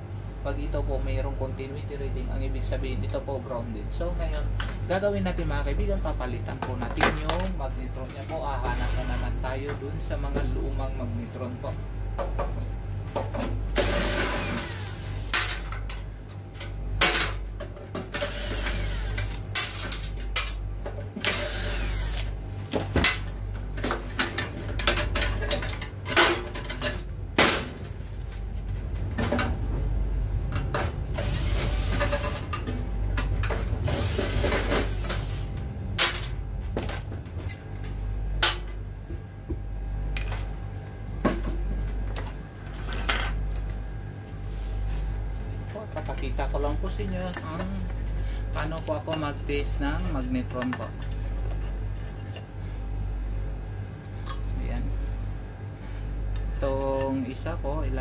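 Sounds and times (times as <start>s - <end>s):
steady low hum: 0.0s - 58.0s
cordless drill running: 18.2s - 19.4s, 21.2s - 22.3s, 31.1s - 32.0s.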